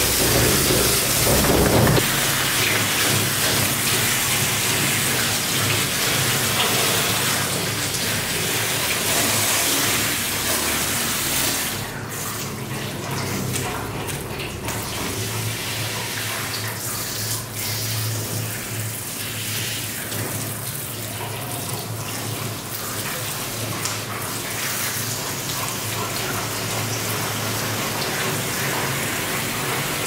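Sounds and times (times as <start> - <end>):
steady low hum: 0.0 - 2.1
shower nozzle spraying water: 0.0 - 3.6.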